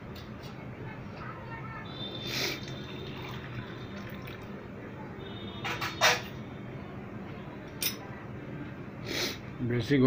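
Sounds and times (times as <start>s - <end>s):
hot water pouring into bottle: 2.4s - 4.6s.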